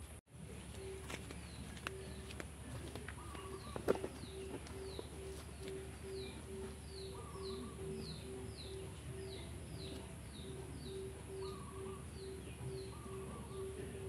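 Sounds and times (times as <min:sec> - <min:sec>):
bird chirping: 0:00.4 - 0:14.0
pulsing low tone: 0:04.3 - 0:14.0.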